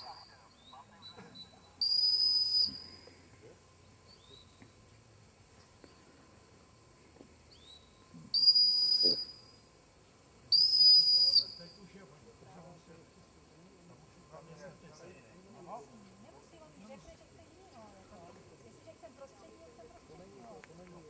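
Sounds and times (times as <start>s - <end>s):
dog whistle blasts: 1.8s - 2.9s, 8.3s - 9.4s, 10.5s - 11.6s.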